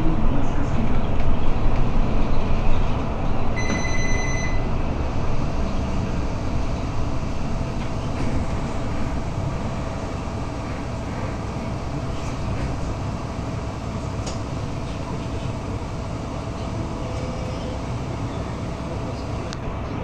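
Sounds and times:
bus engine and road rumble: 0.0s - 20.0s
electronic beep: 3.6s - 4.7s.

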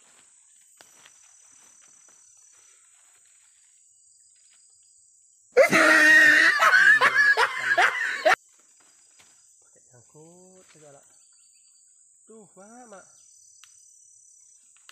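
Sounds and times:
high-pitched laughter: 5.6s - 8.4s.

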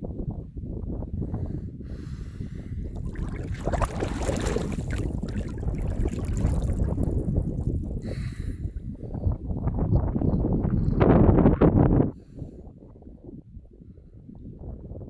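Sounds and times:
steady low rumble: 2.1s - 10.6s
water splashing and bubbling: 2.9s - 8.3s.

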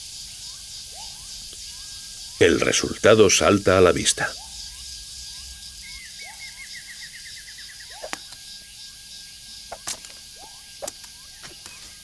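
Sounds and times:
thin steady whine: 0.0s - 12.0s
small animal chirps: 7.7s - 8.4s.

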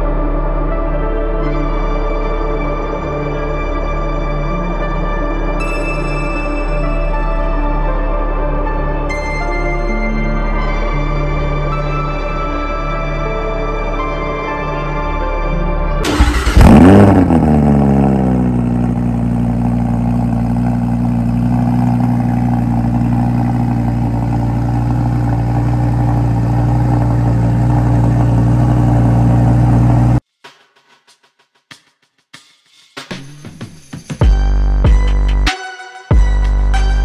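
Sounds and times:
car engine starting and idling: 16.0s - 30.2s.

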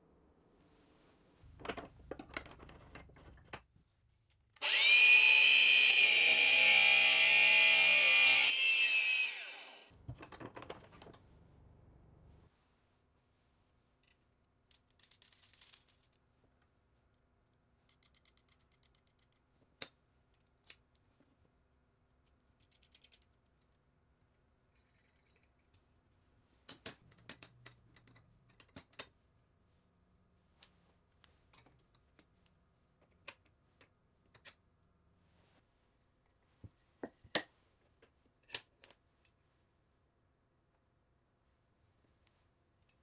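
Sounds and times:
clicks and taps of metal parts: 26.7s - 29.2s.

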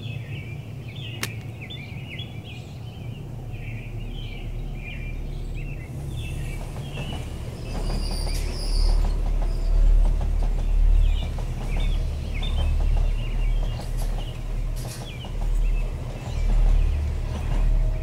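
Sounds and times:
birds chirping: 0.0s - 18.0s
train rumbling past: 0.0s - 18.0s.

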